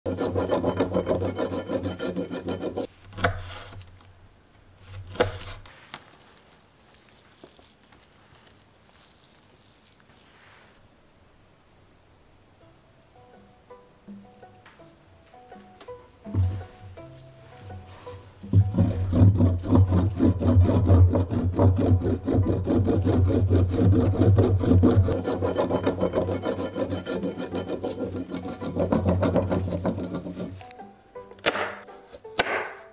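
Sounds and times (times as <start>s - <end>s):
knife chopping on cutting board: 0.1s - 3.8s, 4.9s - 5.6s, 18.5s - 30.5s, 31.4s - 31.8s, 32.4s - 32.9s
knife scraping root skin: 0.1s - 3.9s, 4.8s - 10.2s, 18.6s - 30.7s.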